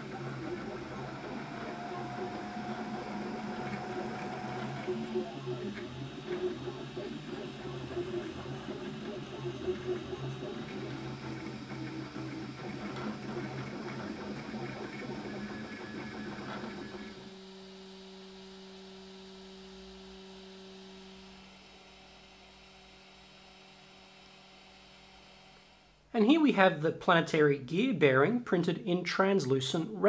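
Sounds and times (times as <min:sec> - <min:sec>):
stepper motors whirring: 0:00.0 - 0:17.3
steady low hum: 0:00.0 - 0:26.3.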